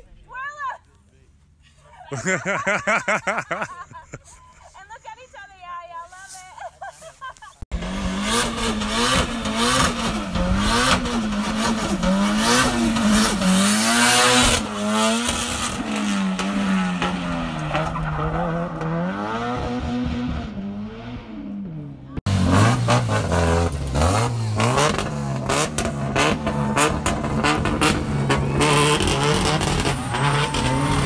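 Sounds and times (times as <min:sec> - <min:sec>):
car engine revving hard: 0:07.7 - 0:31.0
tyres squealing and skidding: 0:16.4 - 0:19.0, 0:26.0 - 0:31.0.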